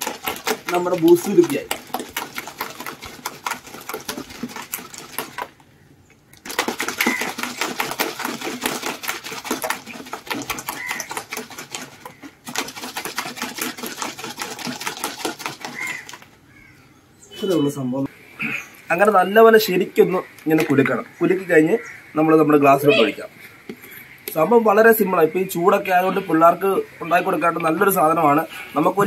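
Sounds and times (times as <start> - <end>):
ice cubes rattling in shaken bottle: 0.0 - 5.6, 6.4 - 16.3.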